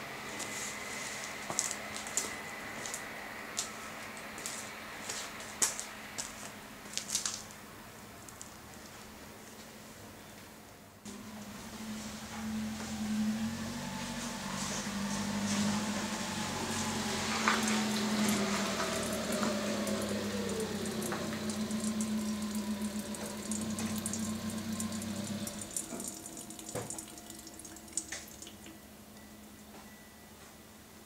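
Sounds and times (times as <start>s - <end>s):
drips: 16.2s - 28.9s
fuel trickling into plastic jug: 17.2s - 28.8s.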